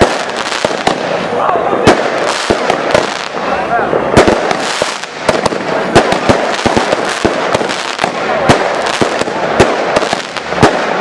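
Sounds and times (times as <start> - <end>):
firework bangs: 0.0 - 11.0
firework hiss and crackle: 0.0 - 11.0.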